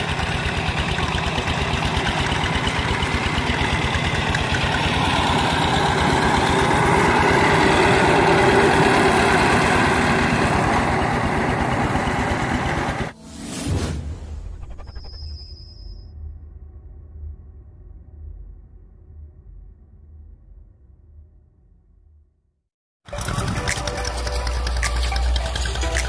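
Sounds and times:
diesel engine chugging: 0.0 - 13.2, 23.1 - 26.0.

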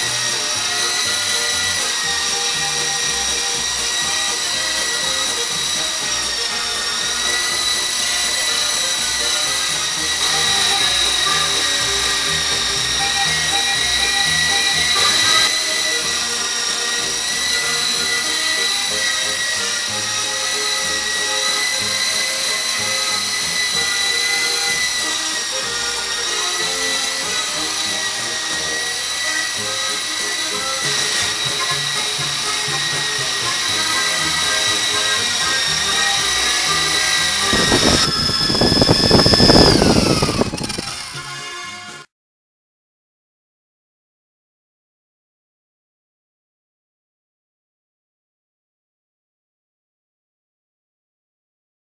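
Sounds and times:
background music: 0.0 - 37.8
toy helicopter rotors whining: 0.0 - 42.1.

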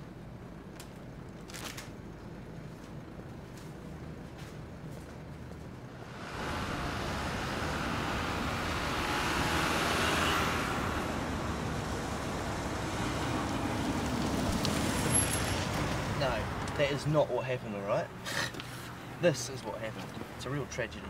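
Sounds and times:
traffic noise: 0.0 - 21.0
truck engine and tyre noise: 0.0 - 21.0.

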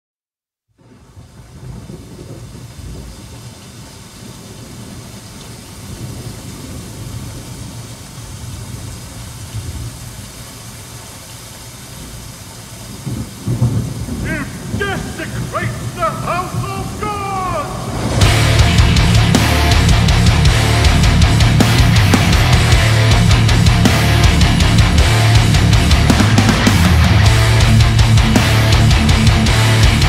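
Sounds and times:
low rumble: 17.7 - 30.0.

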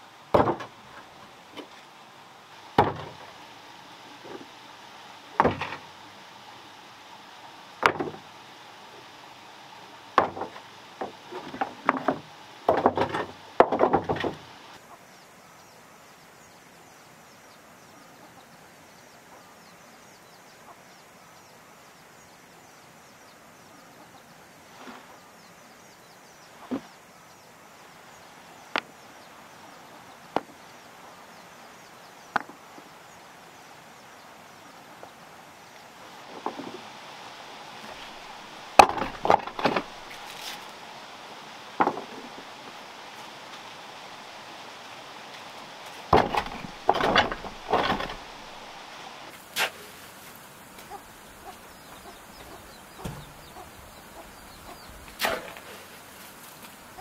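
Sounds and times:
stones knocking together: 37.9 - 40.6, 46.1 - 48.6
stones dropped into wooden wheelbarrow: 37.9 - 40.7, 46.1 - 48.5, 55.1 - 56.8.

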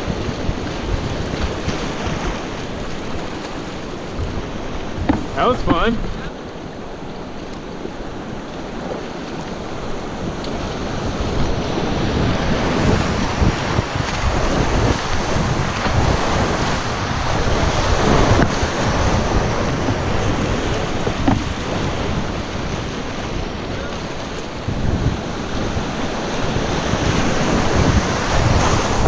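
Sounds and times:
river rapids rushing and splashing: 0.0 - 29.0
wind buffeting microphone: 0.0 - 29.0.

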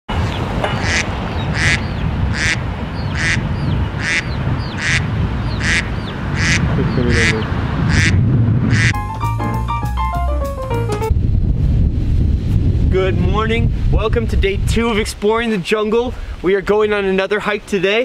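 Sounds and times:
bird harsh call: 0.7 - 9.0.

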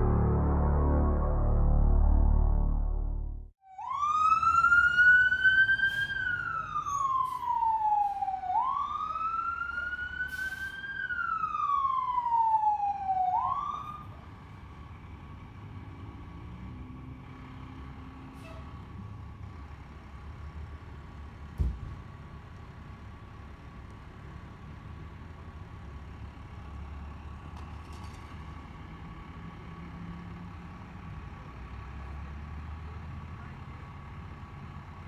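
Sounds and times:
low rumble: 0.0 - 3.6
emergency siren wailing: 0.0 - 14.2.

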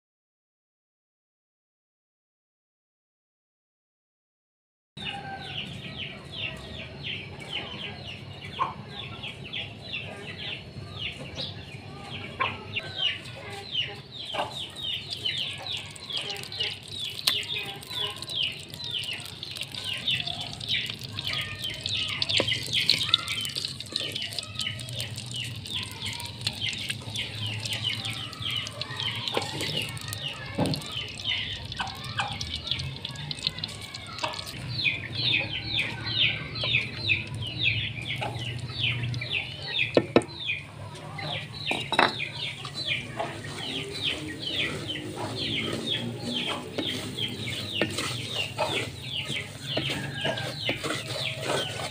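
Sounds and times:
birds chirping: 5.0 - 51.9
wooden spatula knocking clay pot: 39.8 - 40.3, 41.7 - 42.3, 46.4 - 51.9.

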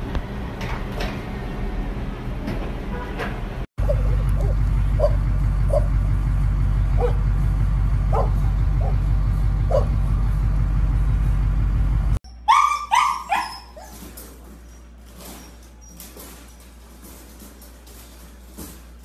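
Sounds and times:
puppy yelping: 3.8 - 5.9, 9.7 - 9.9, 12.3 - 16.0
loud low rumble: 3.8 - 12.2.

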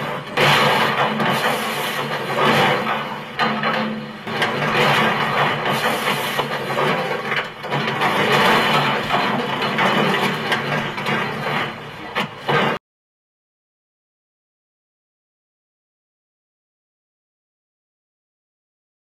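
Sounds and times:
car metal crunching: 0.0 - 12.8
diesel engine under load: 0.0 - 12.8.

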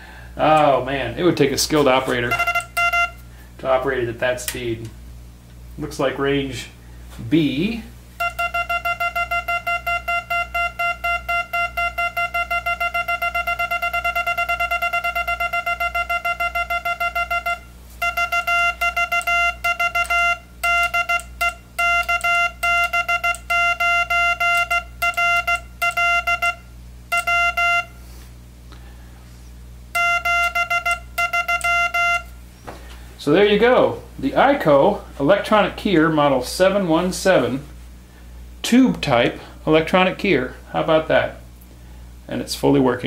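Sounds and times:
buzzy morse code tone: 2.1 - 3.3, 8.2 - 28.1, 29.9 - 32.4.

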